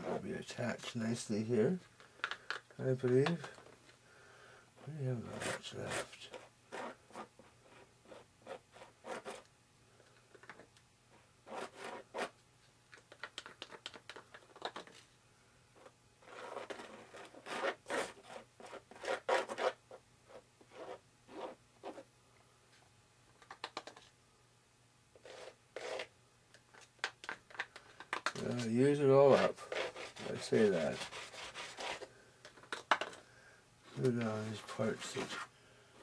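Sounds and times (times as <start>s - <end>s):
stir stick scraping a cup: 25.2s - 26.1s.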